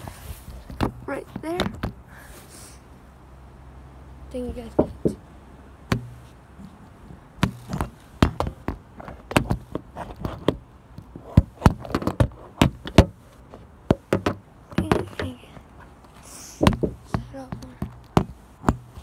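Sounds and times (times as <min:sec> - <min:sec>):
phone tapping in its stand: 0:05.9 - 0:06.7.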